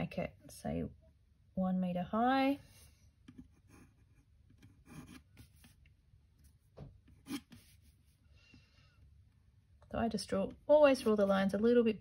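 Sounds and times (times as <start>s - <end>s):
pencil strokes on paper: 2.6s - 6.6s, 7.2s - 8.2s, 10.9s - 11.8s.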